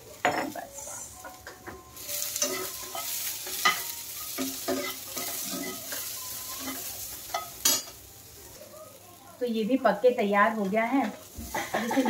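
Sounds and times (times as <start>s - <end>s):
beans sizzling in oil: 0.0s - 12.0s
spatula scraping pan: 2.0s - 7.9s.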